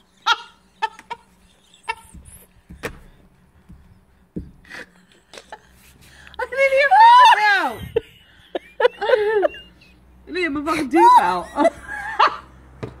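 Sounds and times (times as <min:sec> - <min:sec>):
dull thump: 0:02.0 - 0:04.8.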